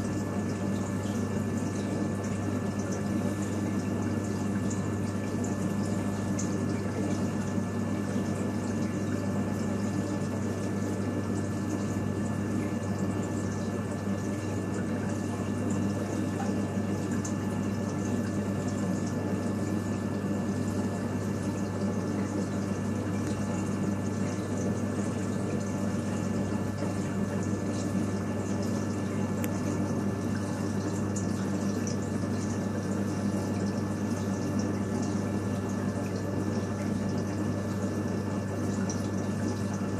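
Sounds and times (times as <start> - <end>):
aquarium pump hum: 0.0 - 39.9
trickling water: 0.0 - 39.9.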